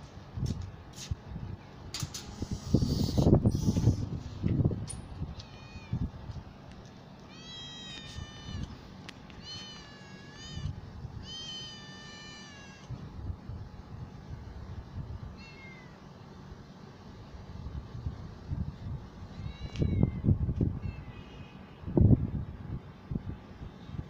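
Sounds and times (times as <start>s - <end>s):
cat meowing: 5.3s - 6.1s, 7.3s - 8.8s, 9.4s - 12.9s, 15.4s - 16.0s, 19.3s - 21.7s.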